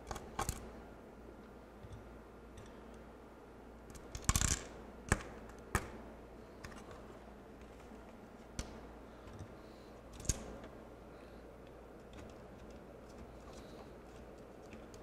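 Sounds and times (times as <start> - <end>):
small clicks from handling parts: 0.0 - 0.7, 1.4 - 3.0, 6.6 - 10.8, 11.6 - 15.0.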